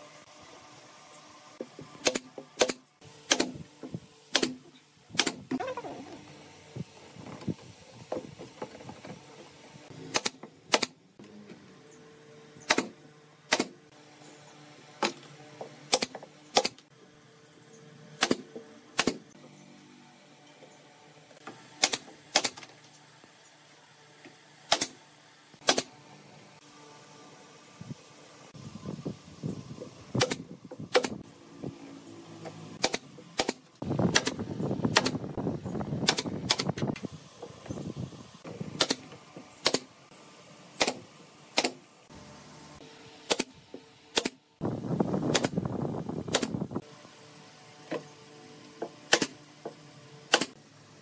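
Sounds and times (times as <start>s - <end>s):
nail gun shots: 2.0s - 3.6s, 4.3s - 5.6s, 10.0s - 11.0s, 12.6s - 13.8s, 15.9s - 16.8s, 18.2s - 19.3s, 21.8s - 22.8s, 24.7s - 25.0s, 25.6s - 26.0s, 30.2s - 31.2s, 32.8s - 35.3s, 36.0s - 36.9s, 38.7s - 39.9s, 40.8s - 41.8s, 43.2s - 44.4s, 45.3s - 45.6s, 46.3s - 46.6s, 49.1s - 49.4s, 50.3s - 50.6s.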